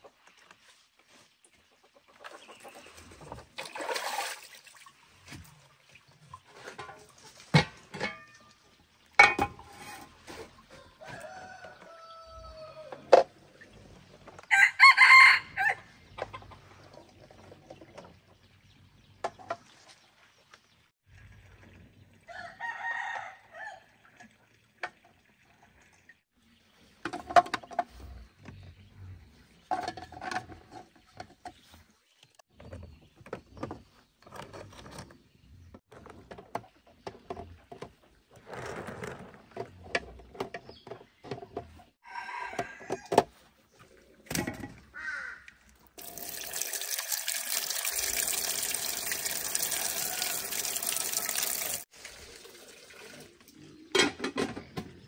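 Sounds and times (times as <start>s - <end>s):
water splashing onto eggs: 3.5s - 6.4s, 45.0s - 53.6s.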